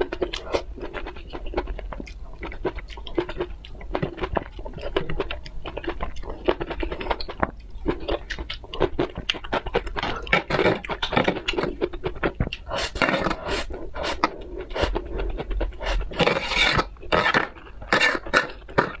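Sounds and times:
noodles slurped and chewed: 0.0s - 19.0s
chopsticks scraping tray: 15.8s - 19.0s.

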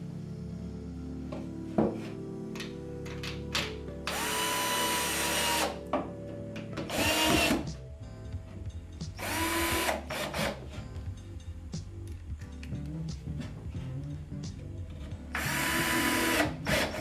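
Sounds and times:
cordless drill motor whining: 4.1s - 5.8s, 9.2s - 10.6s.

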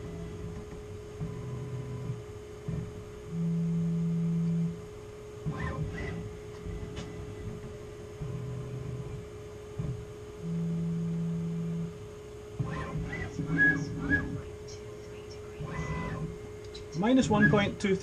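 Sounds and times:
electrical hum: 0.0s - 18.0s
stepper motors whining: 5.4s - 12.0s, 12.6s - 18.0s.

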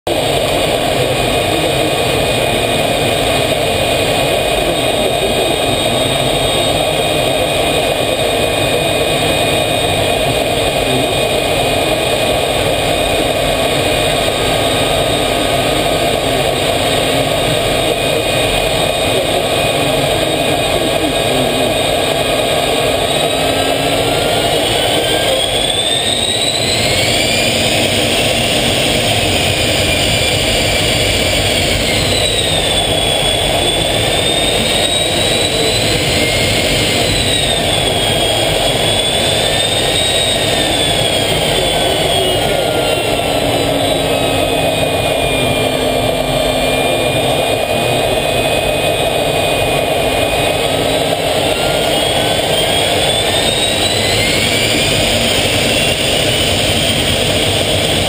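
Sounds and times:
high engine whine: 0.0s - 58.0s
jet engine running: 0.0s - 58.0s.

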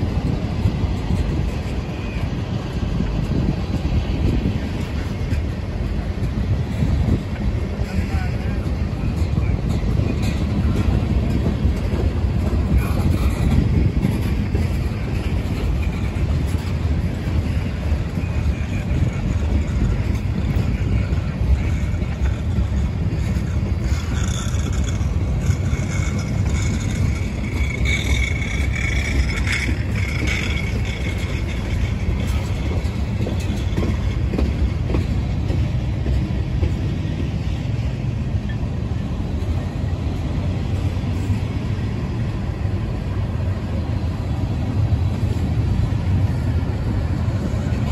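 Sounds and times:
steel wheels rumbling on rail: 0.0s - 47.9s
high wheel squeal: 14.3s - 34.3s.

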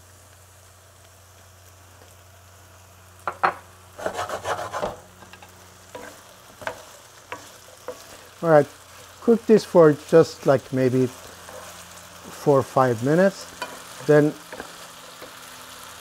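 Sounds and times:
potatoes sizzling in oil: 0.0s - 16.0s
wooden spoon knocking pan: 3.3s - 3.6s.

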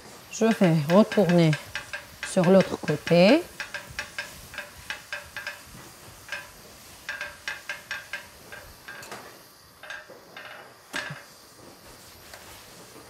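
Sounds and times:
griddle pan clicking on hob: 0.3s - 11.4s.

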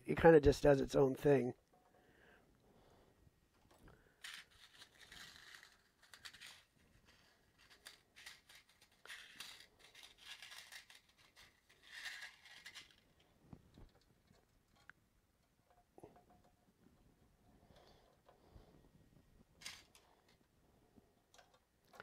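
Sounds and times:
fingers rummaging through screws: 3.5s - 16.6s
metal parts and tools clicking: 3.6s - 16.7s, 19.6s - 20.5s, 21.3s - 22.0s.

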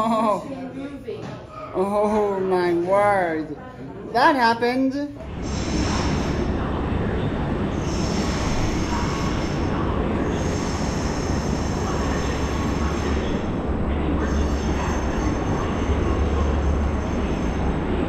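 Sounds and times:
steady low rumble: 5.2s - 18.0s.

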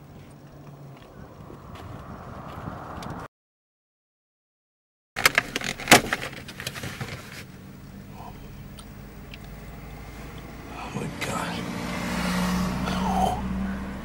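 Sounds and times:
plastic box clicking and crackling: 5.2s - 6.8s
steady low hum: 7.4s - 14.0s.

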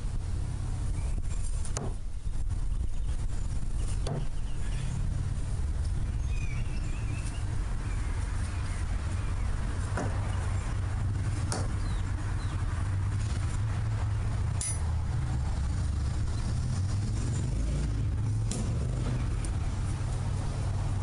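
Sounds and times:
metal striking metal: 14.6s - 14.9s.

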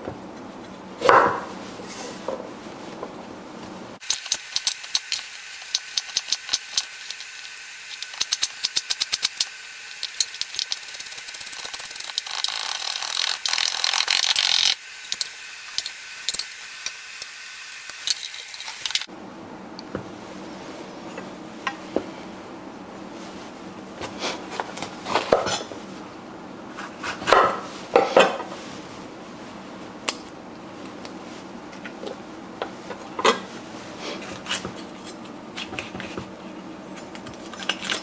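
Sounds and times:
knife chopping on wooden board: 1.0s - 1.5s.

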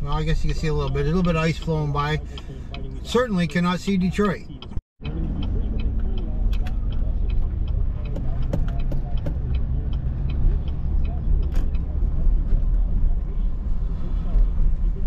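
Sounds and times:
road and engine rumble: 0.0s - 15.0s
turn signal clicking: 0.1s - 13.2s.

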